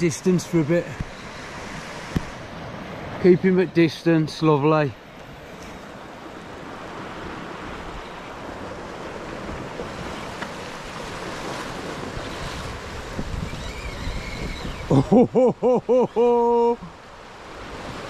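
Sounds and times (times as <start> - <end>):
waves washing over rocks: 5.5 - 15.6
wind rumbling on microphone: 6.2 - 15.4.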